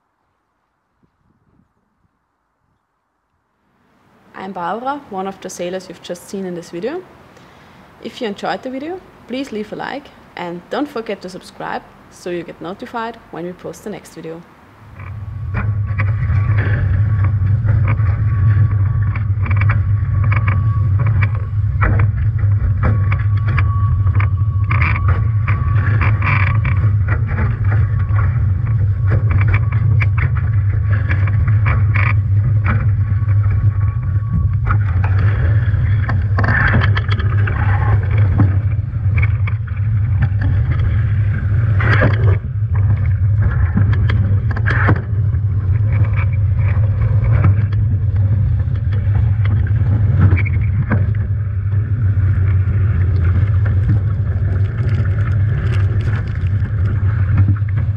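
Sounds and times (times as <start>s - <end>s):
rushing water and wind: 13.2s - 44.0s.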